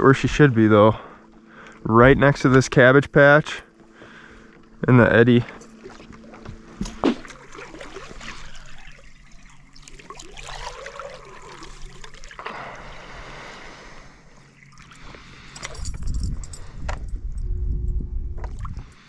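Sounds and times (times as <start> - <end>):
faint low hum: 0.0 - 19.0
water lapping against boat hull: 3.6 - 13.3.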